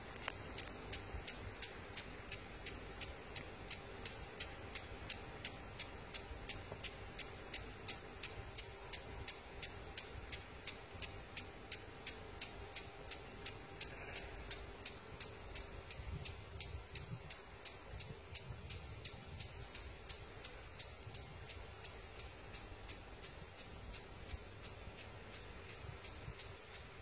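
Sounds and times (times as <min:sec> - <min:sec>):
impact sprinkler ticking: 0:00.0 - 0:27.0.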